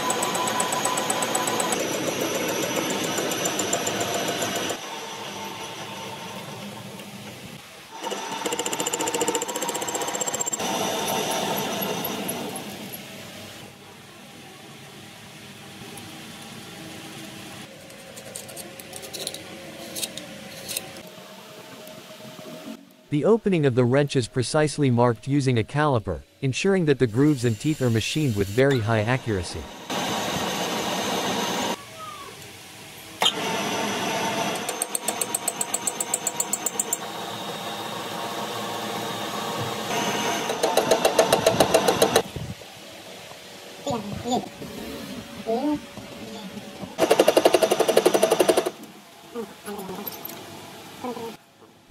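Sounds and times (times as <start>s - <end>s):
metal lathe cutting: 0.0s - 6.5s
low workshop hum: 0.0s - 51.9s.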